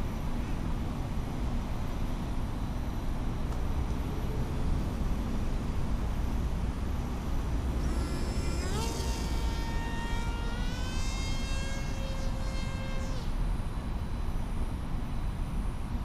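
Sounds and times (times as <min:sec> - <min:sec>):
electric motor and propeller whine: 0:00.0 - 0:16.0.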